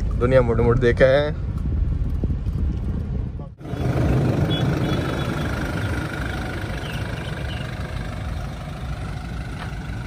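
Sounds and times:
pickup engine idling: 3.6 - 10.0.

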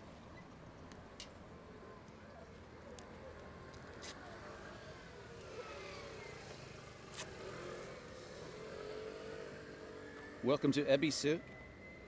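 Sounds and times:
cars passing: 4.3 - 12.0.

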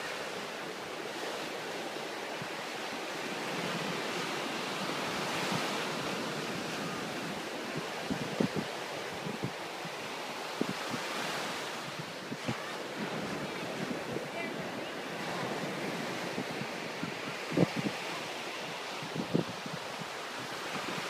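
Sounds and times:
ocean surf breaking: 0.0 - 21.0
wind thumps on microphone: 7.8 - 9.9, 11.9 - 14.3, 15.3 - 18.0, 19.0 - 21.0.

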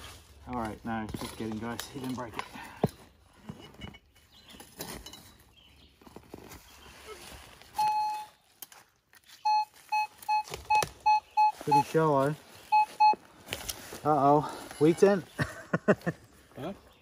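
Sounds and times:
metal detector short beeps: 7.8 - 8.4, 9.4 - 12.0, 12.7 - 13.2
metal detector steady tone: 7.8 - 8.4, 9.4 - 13.2.

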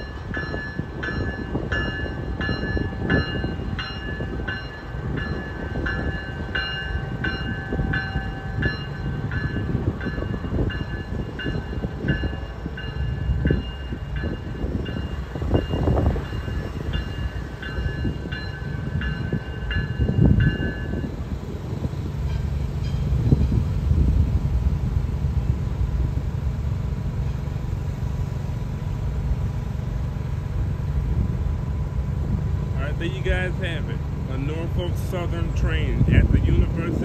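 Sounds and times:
crossing warning bell ringing: 0.0 - 23.7
freight train rumbling and clattering: 0.0 - 37.0.

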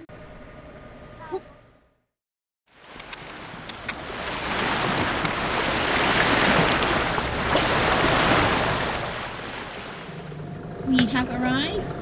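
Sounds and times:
bow wave splashing along hull: 2.7 - 11.6.

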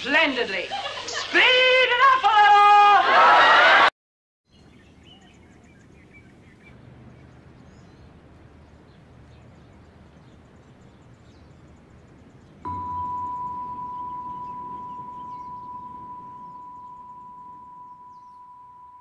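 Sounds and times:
faint outdoor background noise: 0.0 - 3.9, 4.5 - 19.0
bird chirps: 4.5 - 19.0
steady high electronic tone: 12.7 - 19.0.

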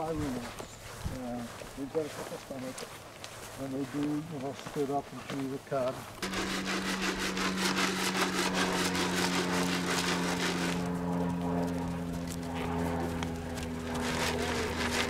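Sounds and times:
fast rhythmic rasping: 6.2 - 11.2
small engine running: 6.2 - 15.0.

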